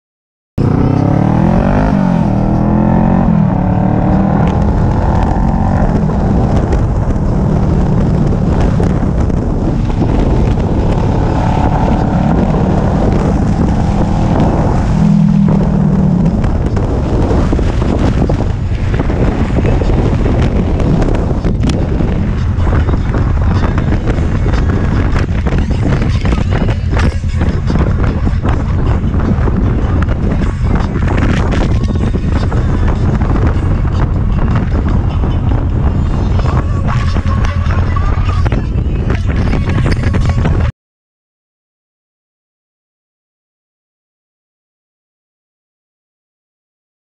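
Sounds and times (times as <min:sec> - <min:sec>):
motorcycle engine accelerating: 0:00.6 - 0:37.9
wind noise on microphone: 0:00.6 - 0:40.7.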